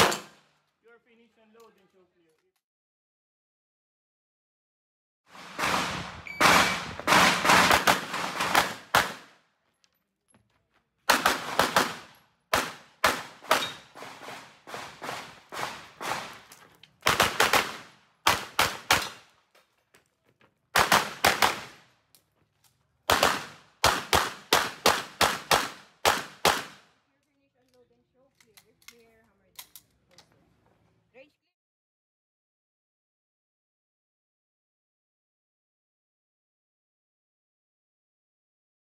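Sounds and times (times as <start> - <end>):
pistol shots: 0.0 - 0.4, 5.6 - 9.3, 11.1 - 16.4, 17.0 - 19.3, 20.8 - 21.8, 23.1 - 26.9.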